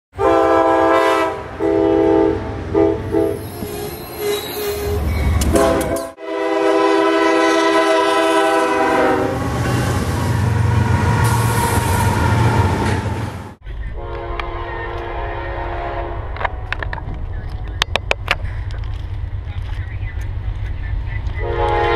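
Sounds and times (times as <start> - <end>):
locomotive air horn blasts: 0.2 - 3.6, 4.7 - 12.7, 14.0 - 17.0, 21.4 - 21.9
freight train rumbling past: 0.2 - 21.9.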